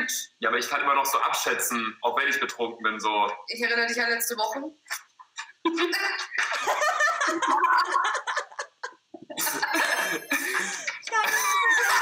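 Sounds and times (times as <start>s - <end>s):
people laughing and giggling: 5.3s - 12.0s.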